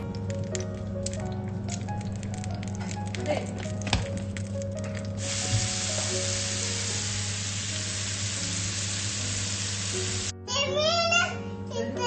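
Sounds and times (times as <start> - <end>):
prawns sizzling in hot oil: 1.2 - 10.3.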